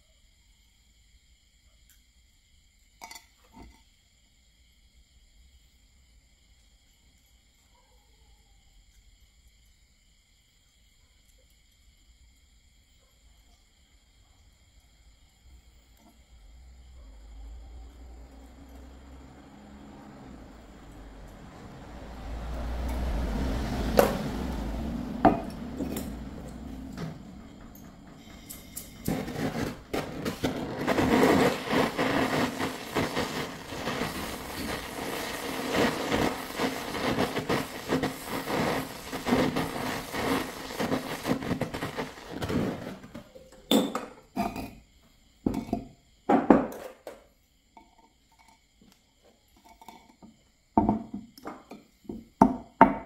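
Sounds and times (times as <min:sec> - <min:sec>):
gas torch flame hissing: 0:18.7 - 0:43.2.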